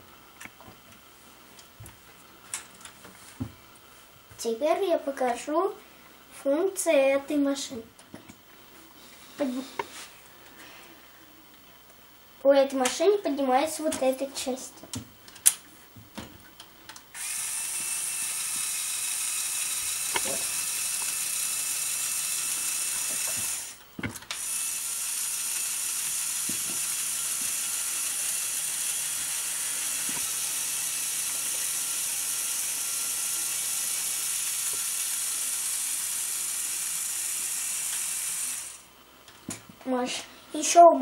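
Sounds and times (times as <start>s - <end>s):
small electric motor whirring: 17.1s - 38.9s.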